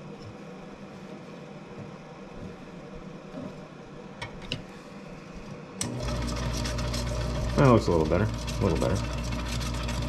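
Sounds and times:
tumbler motor humming: 5.8s - 10.0s.

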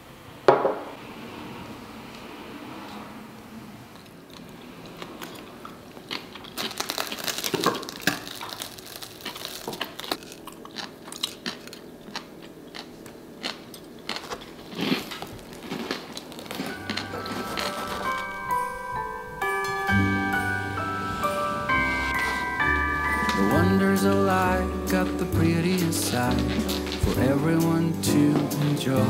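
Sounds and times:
toast crust crunching: 4.3s - 18.5s.

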